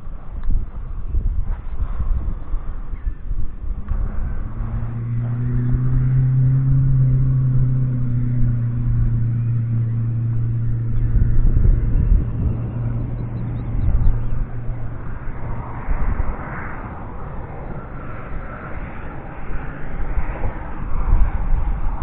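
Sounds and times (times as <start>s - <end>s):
distant engine droning: 0.0s - 22.0s
wind rumbling on microphone: 0.0s - 22.0s.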